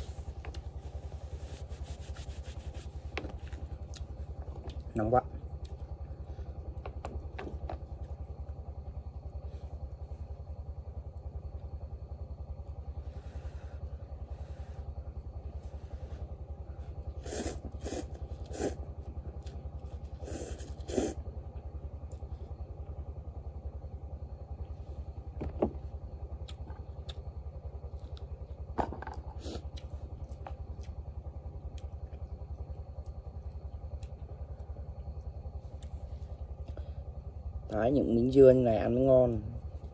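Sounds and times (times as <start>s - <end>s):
low motor drone: 0.0s - 39.9s
slurping noodles: 17.2s - 18.9s, 20.2s - 21.2s.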